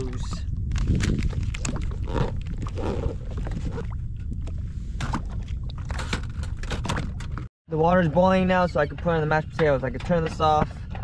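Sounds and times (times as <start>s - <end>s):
wind rumbling on microphone: 0.0s - 7.5s.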